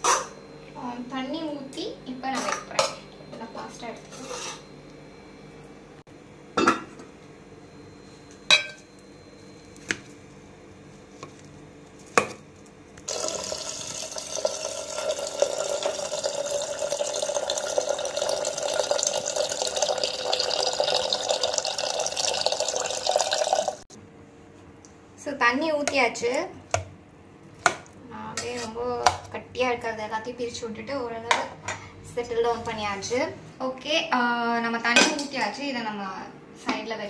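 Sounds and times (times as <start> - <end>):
water pouring into a pot: 13.1 - 23.8.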